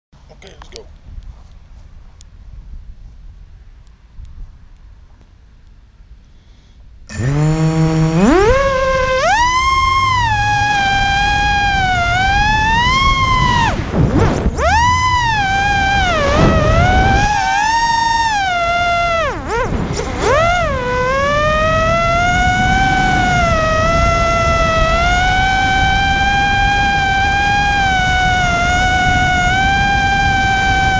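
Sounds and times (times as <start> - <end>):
wind rumble: 6.9 - 30.9
drone propellers whining: 7.1 - 30.9.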